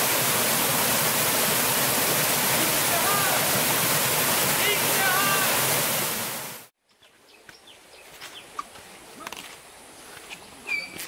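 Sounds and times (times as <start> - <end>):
waterfall roaring: 0.0 - 6.7.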